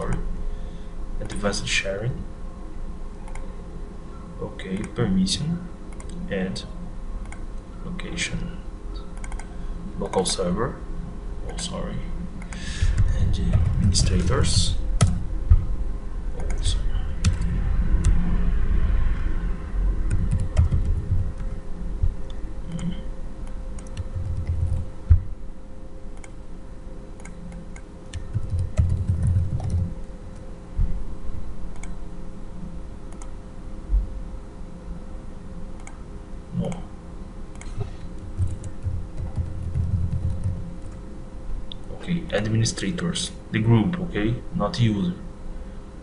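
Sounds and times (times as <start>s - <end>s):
dull low thumps: 12.8s - 15.9s, 19.8s - 22.3s, 24.1s - 25.4s, 38.2s - 40.7s.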